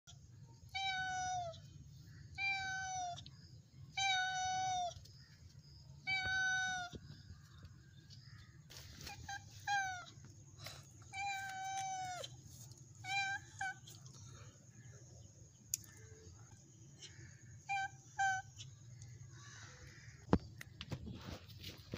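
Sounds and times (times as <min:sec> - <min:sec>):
cat meowing: 0:06.0 - 0:07.0, 0:11.1 - 0:12.4, 0:13.0 - 0:13.9.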